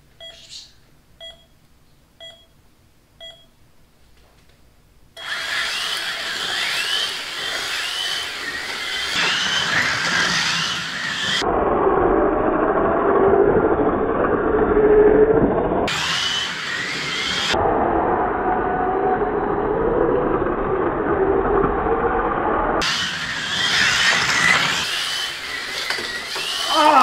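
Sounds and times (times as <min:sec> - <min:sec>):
countdown beeps: 0:00.2 - 0:00.4, 0:01.2 - 0:01.5, 0:02.2 - 0:02.5, 0:03.2 - 0:03.5
slot car motors whining: 0:05.2 - 0:27.0.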